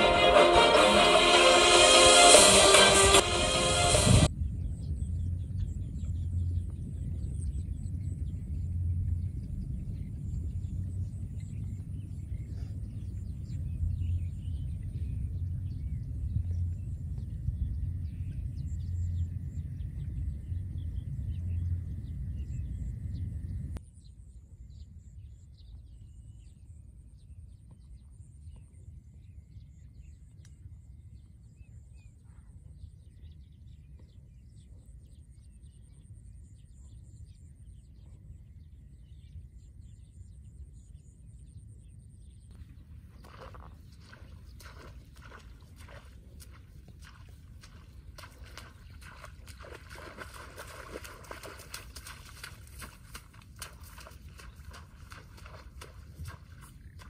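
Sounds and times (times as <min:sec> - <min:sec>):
wind buffeting microphone: 0:04.0 - 0:23.8, 0:42.5 - 0:57.0
faint high chirps and ticks: 0:26.6 - 0:33.0, 0:33.6 - 0:57.0.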